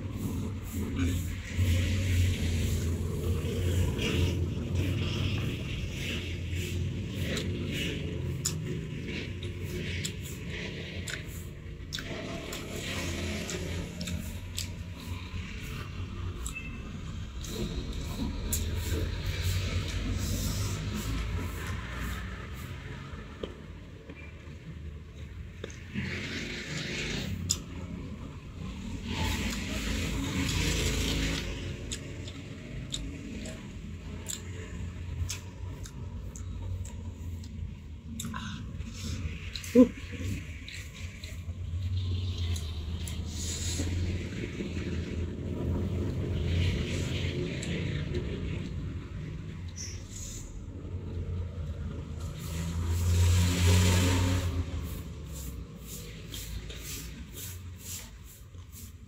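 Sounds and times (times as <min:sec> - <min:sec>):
wet mouth clicks: 0:00.7 - 0:16.8, 0:17.4 - 0:21.2, 0:27.1 - 0:28.0, 0:29.2 - 0:43.9.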